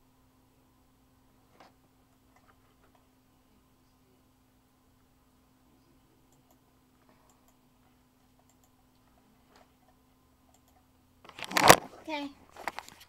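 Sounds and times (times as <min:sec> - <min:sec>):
steady low hum: 0:00.0 - 0:13.0
faint clicks: 0:08.4 - 0:09.1, 0:10.5 - 0:10.8.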